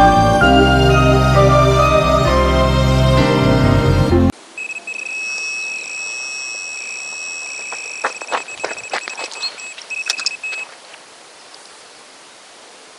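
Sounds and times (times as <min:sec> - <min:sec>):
steady background hiss: 0:09.6 - 0:12.9.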